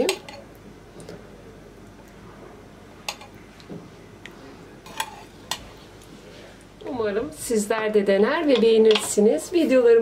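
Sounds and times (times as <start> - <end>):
spoon stirring thick soup: 3.0 - 6.6.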